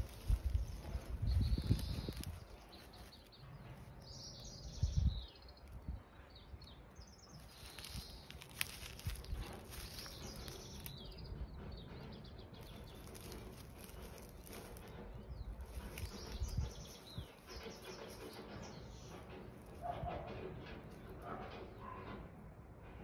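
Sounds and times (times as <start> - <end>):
low rumbling thumps: 0.0 - 2.6
small birds chirping: 0.0 - 20.3.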